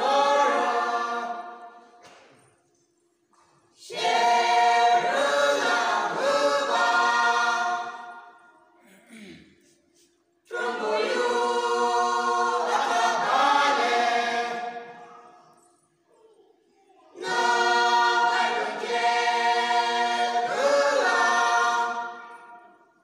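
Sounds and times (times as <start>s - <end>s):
group singing a folk song: 0.0s - 2.3s, 3.8s - 8.6s, 10.4s - 15.3s, 17.1s - 23.0s.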